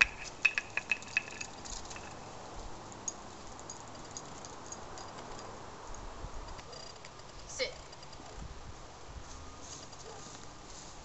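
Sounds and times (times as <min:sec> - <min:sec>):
dog collar tags jingling: 0:00.0 - 0:02.3, 0:02.9 - 0:05.6.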